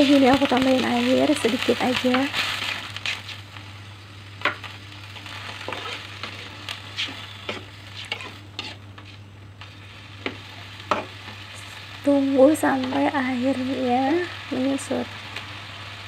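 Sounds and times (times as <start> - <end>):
vegetables sizzling in wok: 0.0 - 16.0
metal spatula scraping pan: 5.6 - 9.1.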